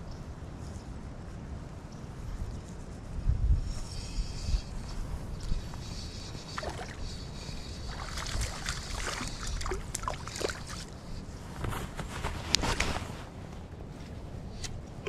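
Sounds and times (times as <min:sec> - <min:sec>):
fish splashing at water surface: 0:07.9 - 0:10.9.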